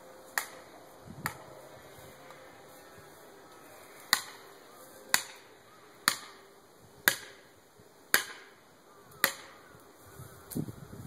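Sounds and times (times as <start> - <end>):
hammer striking metal wedge: 8.1 - 8.4.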